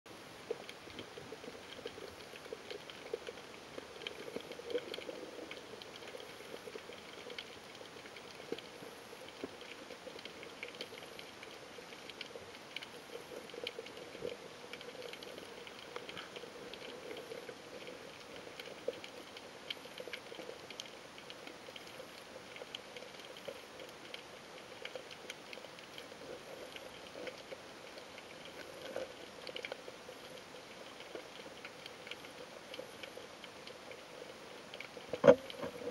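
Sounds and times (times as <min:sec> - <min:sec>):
underwater clicks and pops: 0:34.8 - 0:35.9.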